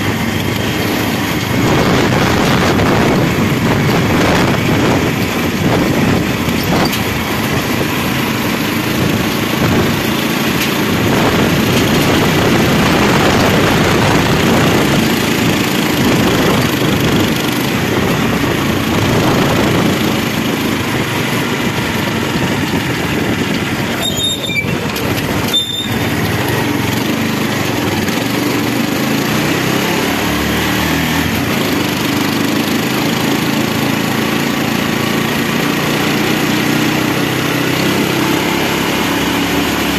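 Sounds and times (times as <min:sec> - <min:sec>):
car engine running: 0:00.0 - 0:29.3
road noise: 0:00.0 - 0:39.9
wind: 0:00.0 - 0:39.9.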